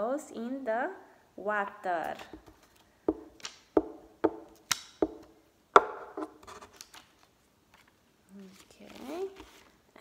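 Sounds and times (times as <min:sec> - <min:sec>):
hand tapping paper on table: 0:02.3 - 0:06.2
paper handling: 0:06.4 - 0:09.8.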